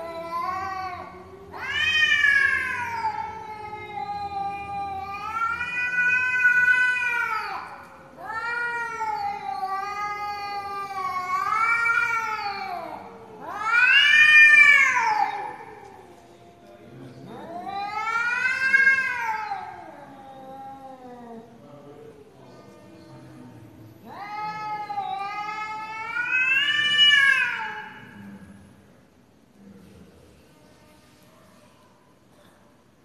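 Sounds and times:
cats yowling: 0:00.0 - 0:16.2, 0:17.2 - 0:21.6, 0:24.0 - 0:28.2.

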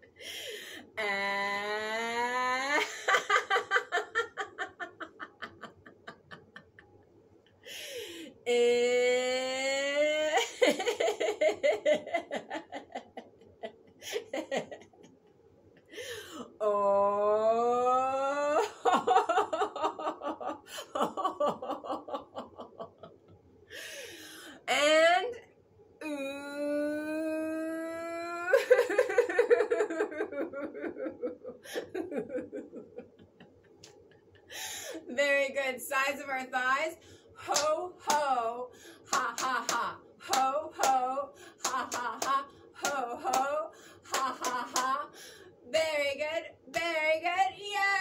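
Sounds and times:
woman breathing in: 0:00.2 - 0:00.9, 0:07.6 - 0:08.4, 0:23.7 - 0:24.6, 0:34.5 - 0:35.0
woman laughing: 0:01.0 - 0:07.0, 0:09.9 - 0:15.1, 0:17.4 - 0:23.3, 0:27.1 - 0:35.1, 0:37.5 - 0:45.1.

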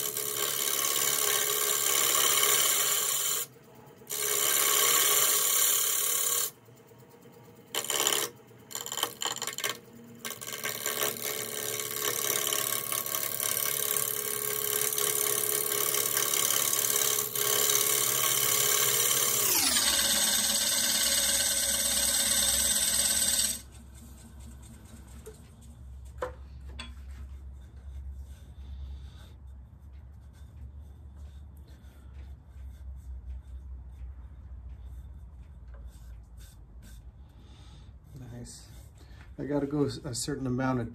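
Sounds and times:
gouge cutting wood on lathe: 0:00.0 - 0:03.5, 0:04.1 - 0:06.6, 0:07.7 - 0:23.7.

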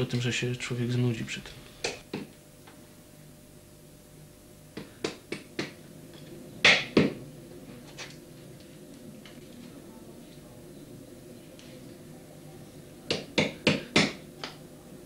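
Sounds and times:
mallet striking chisel into wood: 0:13.1 - 0:14.2.

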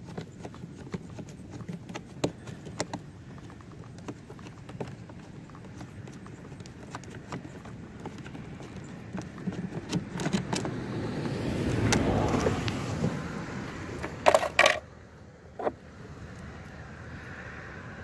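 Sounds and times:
sharp clattering knocks: 0:14.0 - 0:14.8.

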